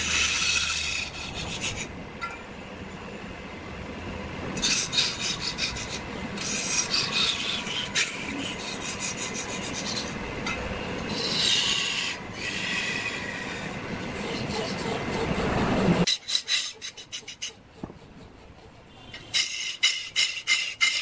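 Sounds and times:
rasp scraping spinning wood: 0.0 - 1.9, 11.1 - 21.0.

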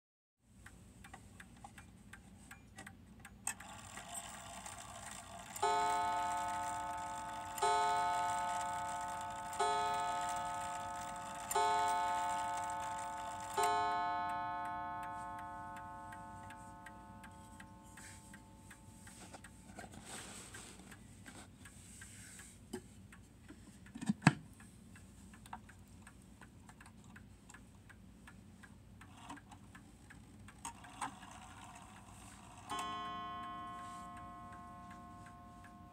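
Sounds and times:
clock ticking: 0.5 - 35.9
clock gong ringing: 5.5 - 19.2, 32.7 - 35.9.

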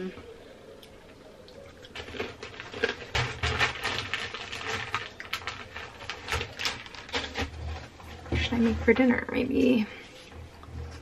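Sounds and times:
chips crunching: 1.5 - 8.0.

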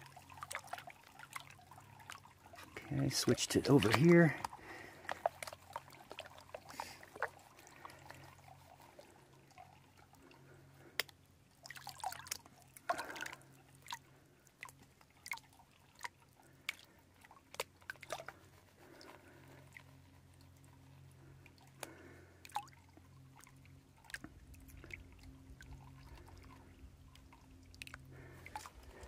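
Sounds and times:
small splashes and clicks: 0.0 - 29.0
water sloshing and dripping: 0.0 - 29.0.

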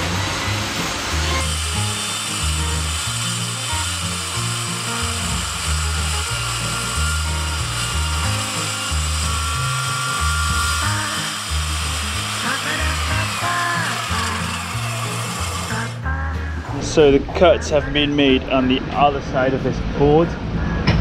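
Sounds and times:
circular saw cutting wood: 0.0 - 16.0
background music with bass: 0.0 - 21.0.

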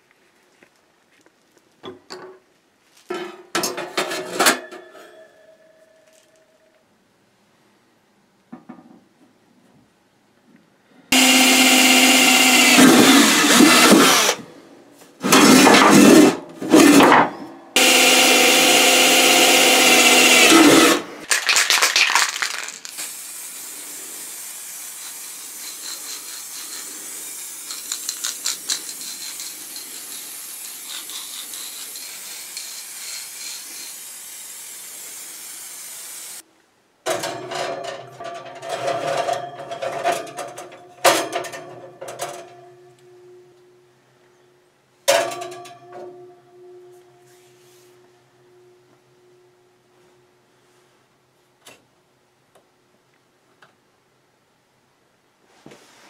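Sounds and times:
power drill boring into steel: 11.1 - 14.4, 17.8 - 21.1
quiet steady hiss: 36.4 - 37.1
metal clatter: 37.1 - 42.8.

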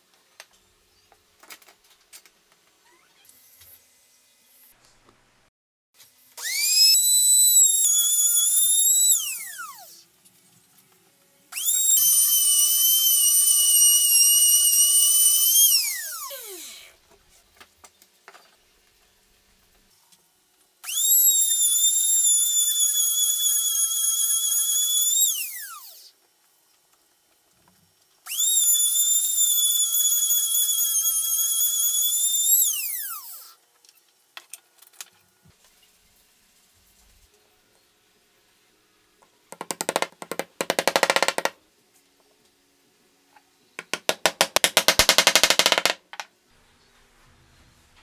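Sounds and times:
router whining: 6.4 - 10.0, 11.6 - 16.9, 28.3 - 33.5.

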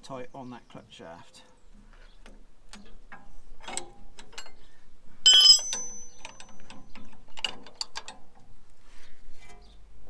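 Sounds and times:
ringing metal clang: 5.3 - 6.6.

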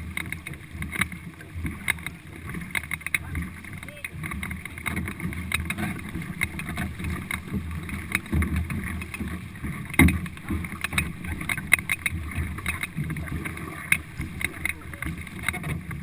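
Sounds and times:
canoe paddles splashing: 0.0 - 16.0
water rushing past hull: 0.0 - 16.0.

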